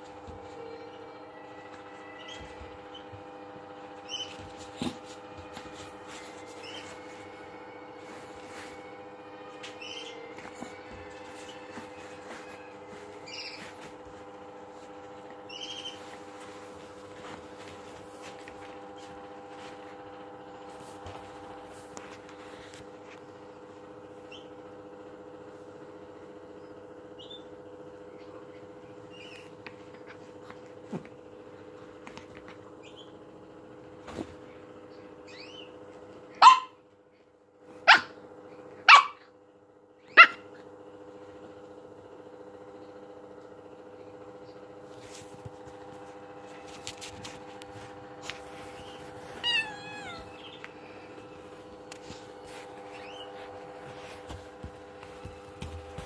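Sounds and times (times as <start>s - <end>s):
small dog barking: 36.3s - 36.8s, 37.8s - 38.2s, 38.8s - 39.4s, 40.0s - 40.6s.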